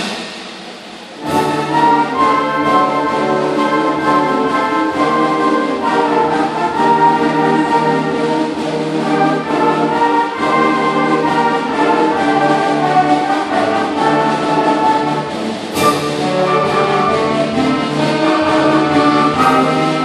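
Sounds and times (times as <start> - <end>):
cymbal crash: 0.0 - 2.2
concert band playing chords: 0.0 - 20.0.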